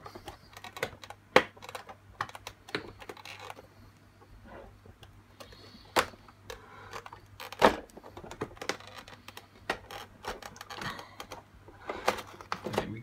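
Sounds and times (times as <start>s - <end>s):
plastic clips snapping: 0.2s - 3.6s.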